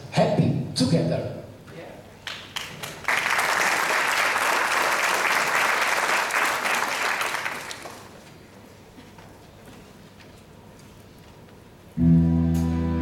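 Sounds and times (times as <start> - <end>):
audience applauding: 2.2 - 8.2.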